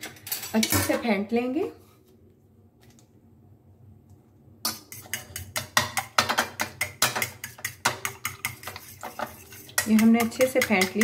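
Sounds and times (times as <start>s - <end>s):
fork clinking against bowl: 4.7s - 11.0s.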